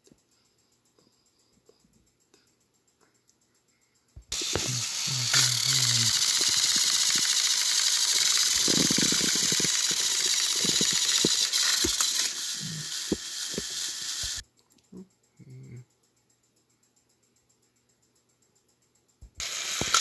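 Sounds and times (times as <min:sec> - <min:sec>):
gears rattling: 0:04.3 - 0:14.4, 0:19.4 - 0:20.0
wheels and couplings clicking: 0:04.3 - 0:14.4
toy train motors whirring: 0:04.3 - 0:14.5, 0:19.4 - 0:20.0.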